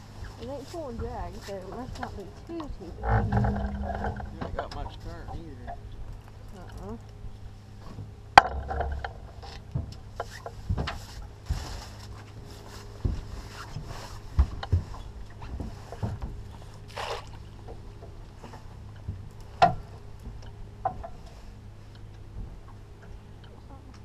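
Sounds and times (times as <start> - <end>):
gear knocking on aluminum boat: 0.4 - 6.9, 7.8 - 11.5.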